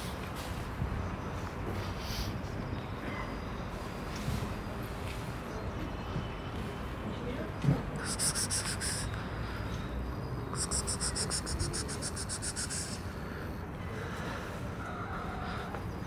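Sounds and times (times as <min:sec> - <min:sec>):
insect trilling: 0:08.0 - 0:09.1, 0:10.5 - 0:13.0.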